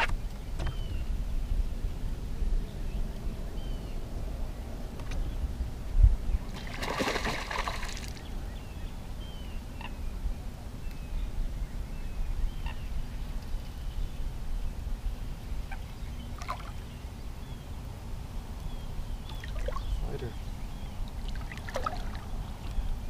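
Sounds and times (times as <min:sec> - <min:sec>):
small birds chirping: 0:00.0 - 0:01.7, 0:06.3 - 0:23.0
low wind rumble: 0:00.0 - 0:23.0
low thump on boat: 0:00.5 - 0:01.0
fish splashing at water surface: 0:06.5 - 0:08.2.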